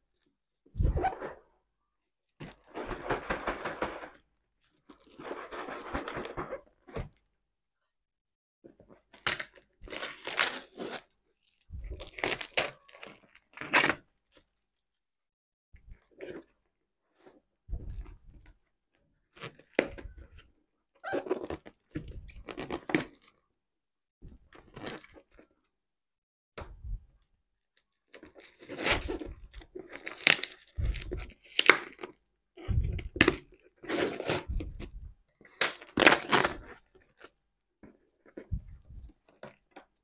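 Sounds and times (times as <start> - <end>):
plastic wrap crinkling and tearing: 8.9 - 14.6, 28.0 - 32.2, 35.5 - 37.3.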